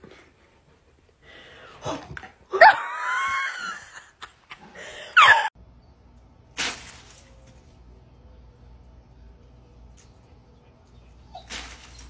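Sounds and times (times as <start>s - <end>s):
dog yowling: 5.2s - 5.5s.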